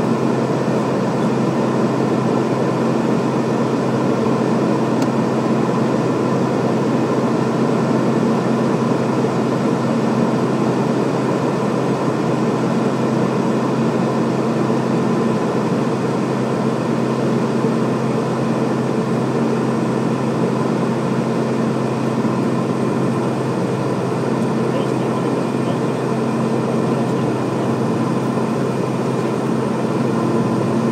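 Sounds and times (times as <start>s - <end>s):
turboprop engines droning: 0.0s - 30.9s.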